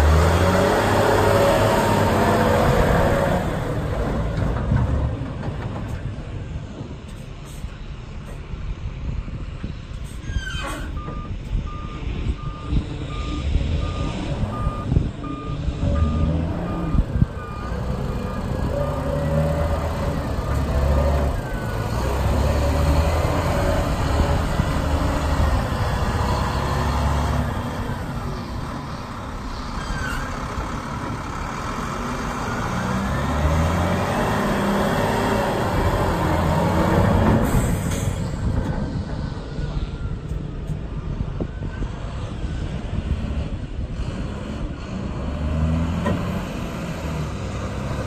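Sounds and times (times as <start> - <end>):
reversing alarm beeping: 10.9 - 18.8
diesel truck engine running: 11.0 - 48.0.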